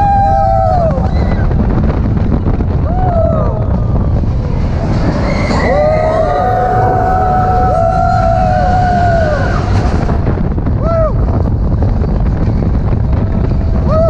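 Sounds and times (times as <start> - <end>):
roller coaster rumbling on track: 0.0 - 14.0
wind buffeting microphone: 0.0 - 14.0
riders screaming: 5.0 - 9.8.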